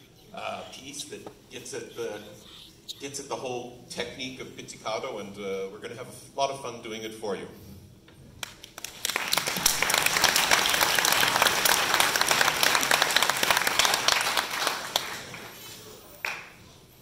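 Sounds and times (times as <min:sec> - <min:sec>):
audience applause: 0:08.8 - 0:15.6, 0:16.2 - 0:16.5.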